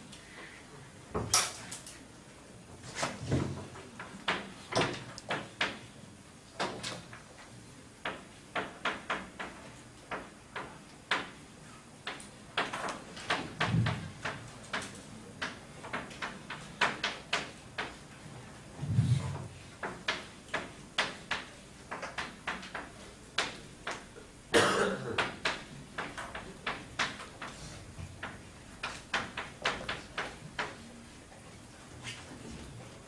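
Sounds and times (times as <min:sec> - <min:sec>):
chalk tapping on chalkboard: 0:08.0 - 0:11.4, 0:12.0 - 0:18.0, 0:19.8 - 0:24.1, 0:25.2 - 0:30.9.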